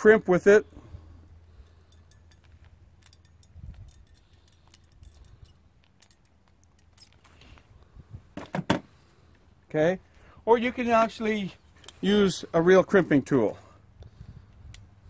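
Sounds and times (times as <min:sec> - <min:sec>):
crimping tool clicking and creaking: 0:02.0 - 0:07.6.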